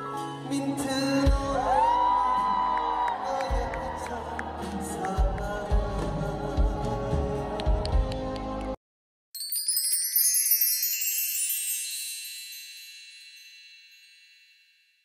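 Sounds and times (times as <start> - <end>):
concert music: 0.0 - 8.8
bell-like chime cascade: 9.4 - 15.0.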